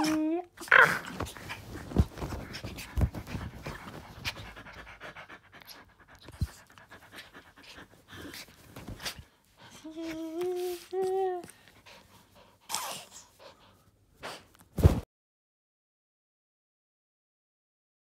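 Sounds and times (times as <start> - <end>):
rustling of fur and bedding: 0.0 - 5.1, 6.3 - 12.4
dog panting and snuffling: 0.9 - 14.7.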